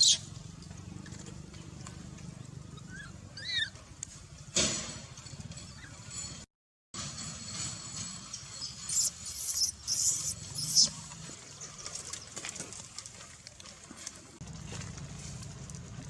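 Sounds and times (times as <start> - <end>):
baby monkey squealing: 0.0 - 0.2, 2.8 - 3.7, 8.8 - 10.9.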